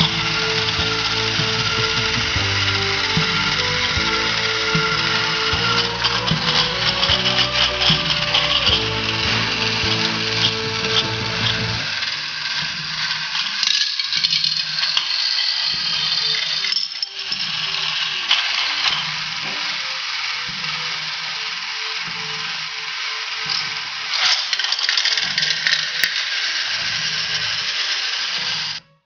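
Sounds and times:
low clatter on track: 0.0s - 16.6s
plastic wheels rattling: 0.0s - 28.8s
toy train motor whirring: 0.0s - 29.0s.

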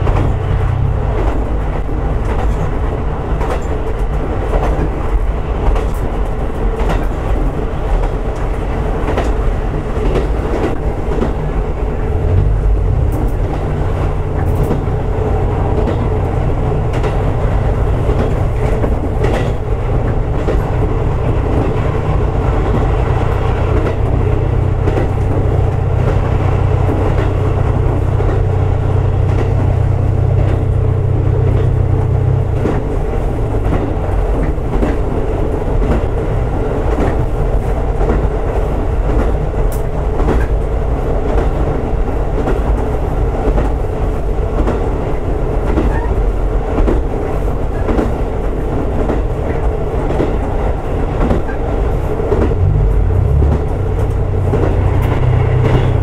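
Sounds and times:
low engine drone: 0.0s - 2.4s, 11.8s - 34.4s, 52.5s - 56.0s
railcar rumble: 0.0s - 56.0s.

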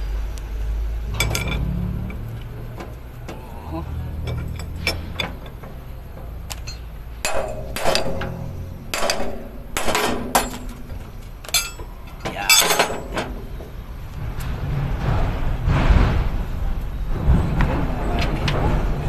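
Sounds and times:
metal tools clinking and knocking: 1.1s - 3.5s, 4.1s - 13.7s.

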